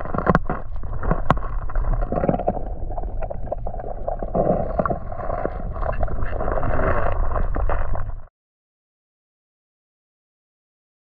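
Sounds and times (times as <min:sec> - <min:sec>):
muffled underwater rumble and gurgle: 0:00.0 - 0:08.3.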